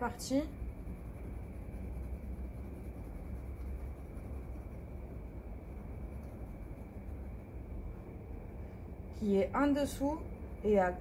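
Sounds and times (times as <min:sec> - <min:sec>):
pencil scratching on paper: 0:00.0 - 0:07.8
steady low rumble: 0:00.0 - 0:11.0.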